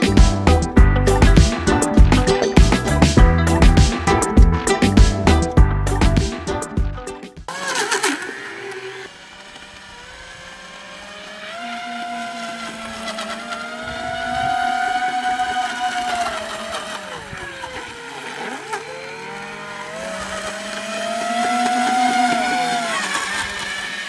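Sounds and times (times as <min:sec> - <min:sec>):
electric motors whining: 0:07.5 - 0:24.0.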